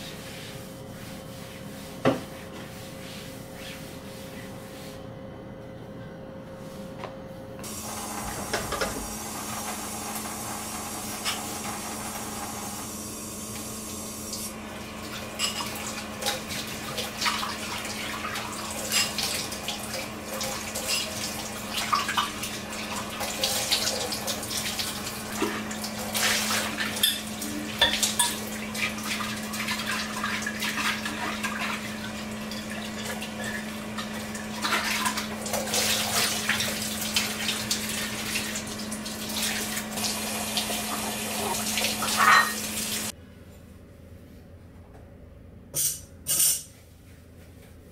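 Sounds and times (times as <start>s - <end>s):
tap running into sink: 8.3s - 9.1s
dishes and cutlery clinking: 15.4s - 15.7s, 27.0s - 28.4s, 42.0s - 42.6s, 45.8s - 46.8s.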